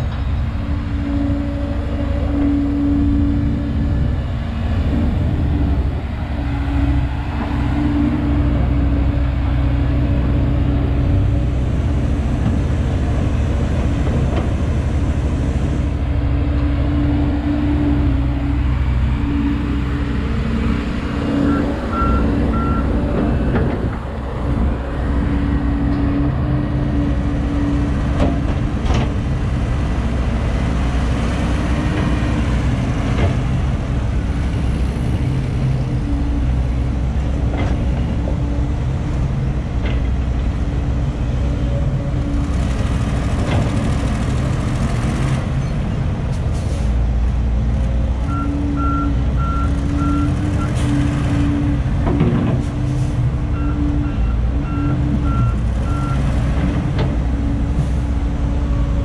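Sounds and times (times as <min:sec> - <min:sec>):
diesel engines running: 0:00.0 - 0:59.0
reversing alarm beeping: 0:21.3 - 0:23.0, 0:53.5 - 0:56.3.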